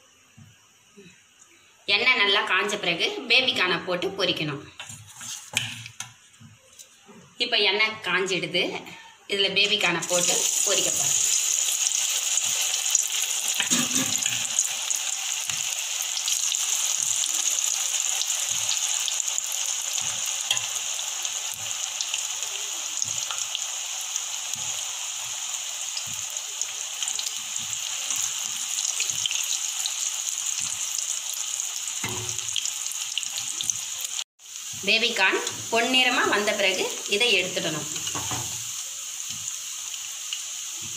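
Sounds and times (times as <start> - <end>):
food deep-frying in oil: 9.6 - 40.9.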